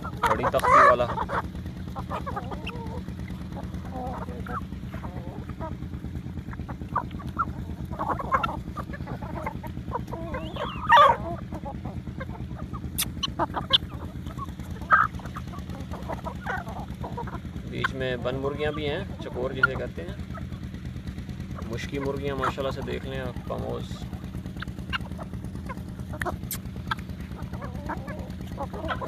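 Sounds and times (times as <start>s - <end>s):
chickens and guinea fowl calling: 0.0s - 29.0s
loud harsh squawk: 6.6s - 18.0s, 24.6s - 29.0s.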